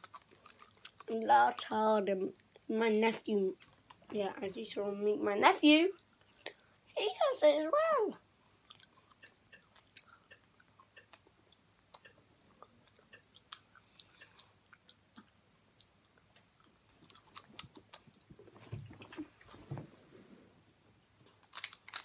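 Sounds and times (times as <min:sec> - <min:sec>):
small clicks and crackles: 0:00.0 - 0:02.7, 0:03.5 - 0:04.3, 0:11.9 - 0:19.6, 0:21.2 - 0:22.0.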